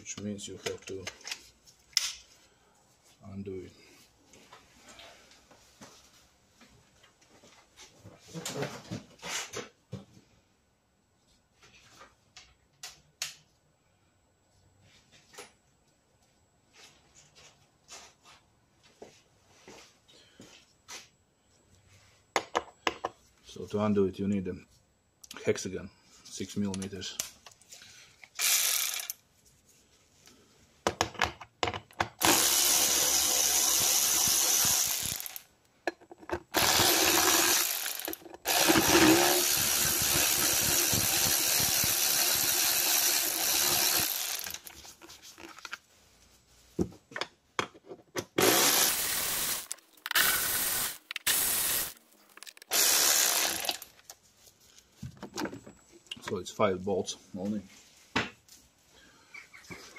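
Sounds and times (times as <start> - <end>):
power drill spinning out bolts: 28.2 - 29.2, 32.1 - 35.5, 36.4 - 45.1, 48.4 - 54.1.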